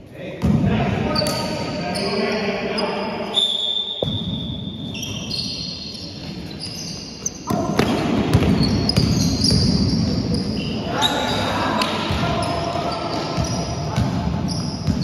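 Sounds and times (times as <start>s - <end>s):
basketball bouncing on floor: 7.5s - 9.8s.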